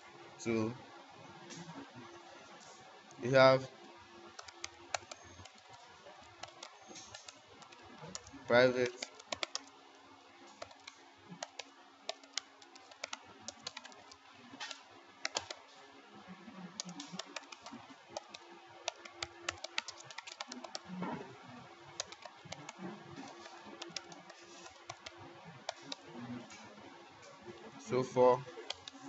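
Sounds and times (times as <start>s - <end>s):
computer keyboard typing: 4.3s - 9.8s, 10.5s - 15.6s, 16.7s - 21.0s, 21.9s - 26.2s, 28.5s - 29.0s.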